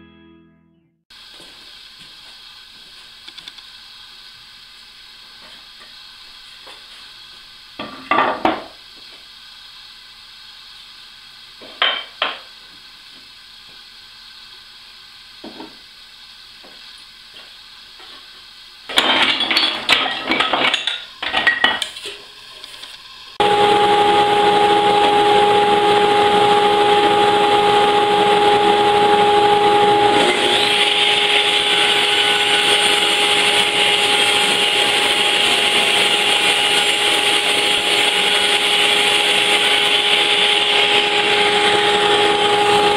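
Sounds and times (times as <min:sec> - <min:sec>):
wooden boards clattering: 0:18.9 - 0:21.8.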